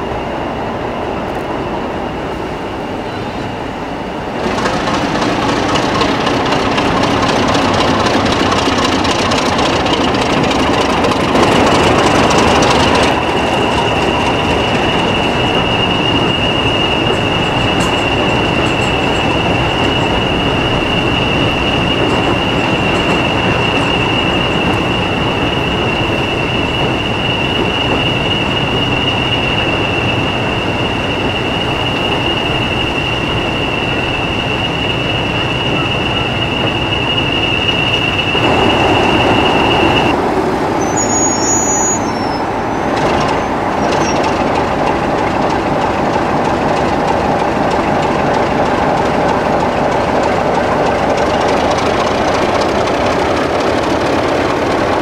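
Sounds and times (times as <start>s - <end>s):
train rumbling on rails: 0.0s - 55.0s
high-pitched whine: 11.9s - 40.2s.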